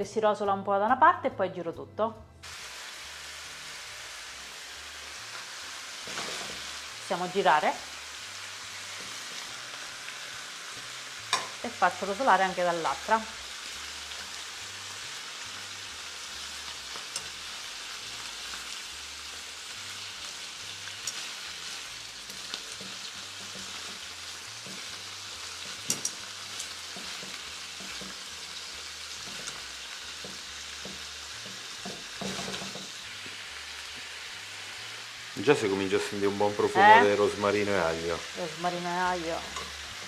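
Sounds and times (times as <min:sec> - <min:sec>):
chicken sizzling in oil: 0:02.4 - 0:40.0
metal tongs knocking on pan: 0:11.3 - 0:11.6, 0:25.7 - 0:26.2.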